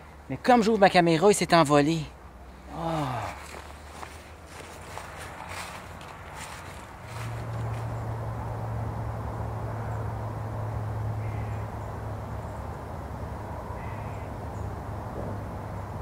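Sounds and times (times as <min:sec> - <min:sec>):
faint bird calls: 0:11.2 - 0:12.6, 0:13.7 - 0:14.7.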